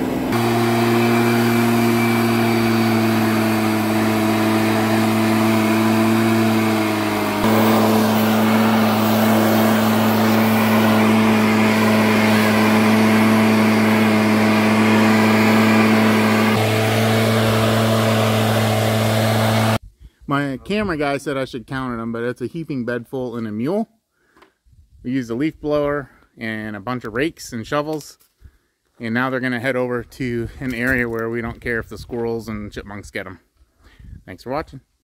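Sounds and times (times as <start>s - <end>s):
leaf blower running: 0.0s - 19.8s
air rushing: 6.4s - 19.8s.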